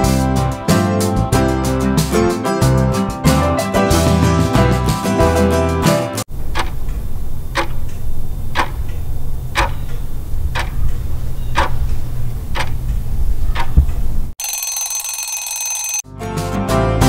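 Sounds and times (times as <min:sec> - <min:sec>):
clock ticking: 0:06.4 - 0:11.9, 0:12.5 - 0:12.8
alarm bell ringing: 0:14.4 - 0:16.1.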